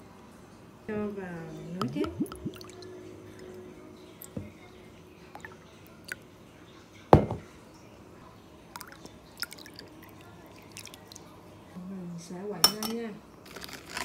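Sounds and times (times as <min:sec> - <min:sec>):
liquid pouring into bowl: 0:01.8 - 0:03.6, 0:08.7 - 0:11.4.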